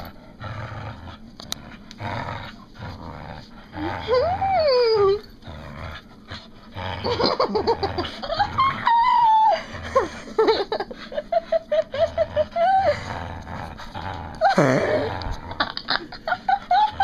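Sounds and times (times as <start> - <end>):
dog whining: 3.8 - 5.4, 7.1 - 10.1, 11.1 - 13.2.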